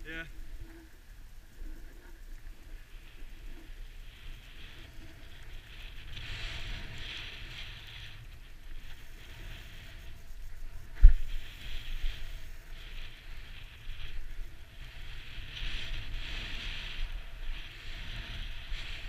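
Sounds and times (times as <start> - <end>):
snowboard sliding through snow: 0.0 - 19.0.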